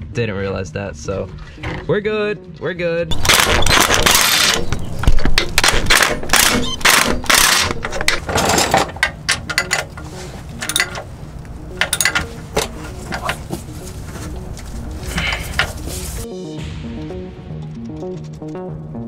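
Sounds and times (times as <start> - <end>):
clicks and clatter of hand work: 3.1 - 11.1, 11.7 - 16.0
impact wrench rattling: 3.1 - 11.1, 11.7 - 14.2.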